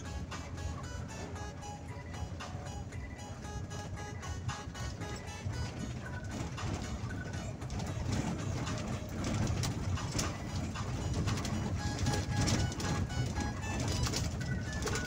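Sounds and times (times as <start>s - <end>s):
vehicle rumble on dirt road: 0.0s - 15.0s
knocks and rattles: 5.0s - 15.0s.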